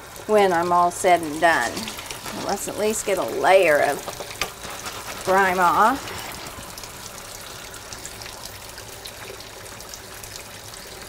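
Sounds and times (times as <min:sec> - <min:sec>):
faucet running into sink: 0:00.0 - 0:11.0
hands rinsing under water: 0:00.4 - 0:08.7.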